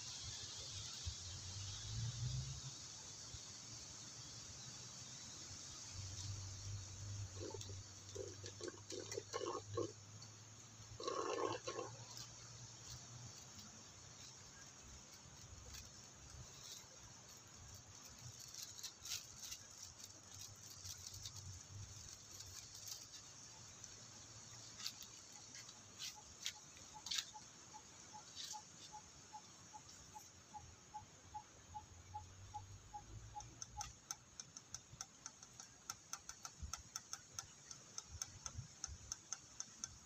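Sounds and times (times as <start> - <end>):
faint regular ticking: 5.0 - 40.0
faint clicks: 32.5 - 40.0.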